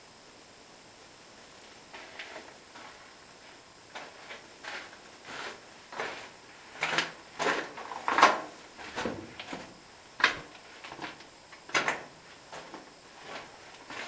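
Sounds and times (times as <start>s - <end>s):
footsteps on stony floor: 12.4s - 14.0s.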